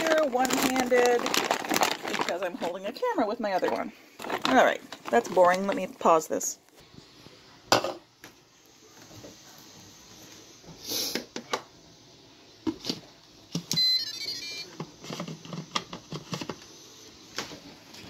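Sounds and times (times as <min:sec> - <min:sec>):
electronic chime: 0:13.8 - 0:14.7.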